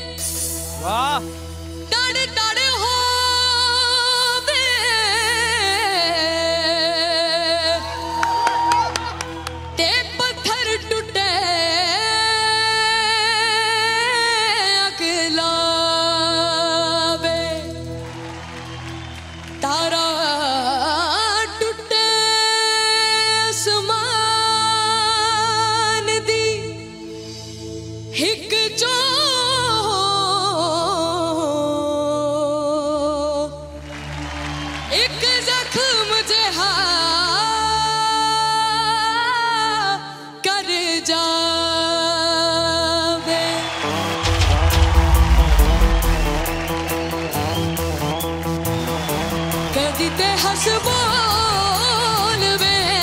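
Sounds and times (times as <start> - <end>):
instrumental backing: 43.7 - 53.0
person singing with vibrato: 49.6 - 53.0.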